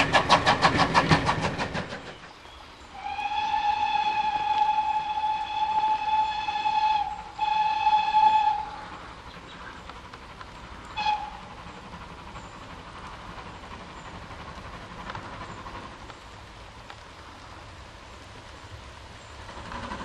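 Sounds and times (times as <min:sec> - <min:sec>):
steam locomotive running: 0:00.0 - 0:20.0
steam locomotive whistle: 0:02.9 - 0:09.0, 0:10.9 - 0:11.6.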